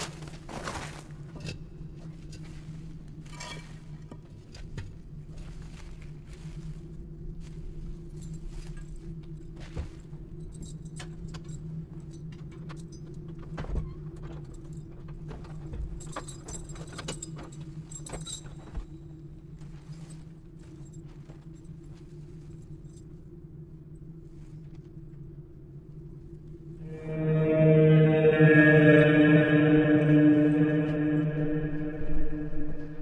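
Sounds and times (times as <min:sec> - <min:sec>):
keys jangling in door lock: 0:16.0 - 0:18.7
steady low hum: 0:22.4 - 0:33.0.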